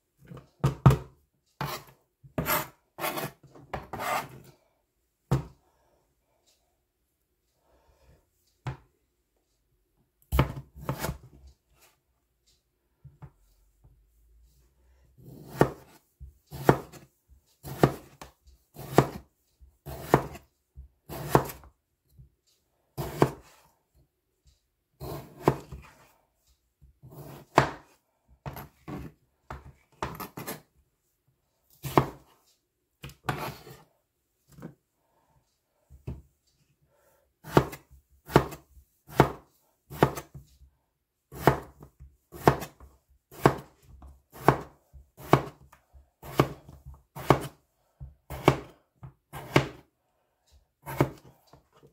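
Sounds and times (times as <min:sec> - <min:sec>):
knife chopping on plastic board: 0:00.2 - 0:04.5, 0:05.3 - 0:05.5, 0:10.2 - 0:11.4, 0:15.2 - 0:19.2, 0:19.8 - 0:21.7, 0:23.0 - 0:23.6, 0:25.0 - 0:26.1, 0:27.0 - 0:30.7, 0:31.8 - 0:32.4, 0:33.0 - 0:33.9, 0:37.4 - 0:40.4, 0:41.3 - 0:49.9, 0:50.8 - 0:51.9.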